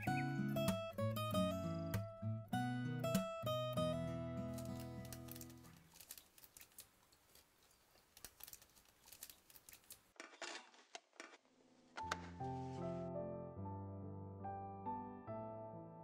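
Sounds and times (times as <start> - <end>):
piano music: 0.0 - 5.0, 12.0 - 16.0
guitar music: 0.0 - 5.3
paper rustling: 4.5 - 11.4
small clicks: 4.5 - 11.4.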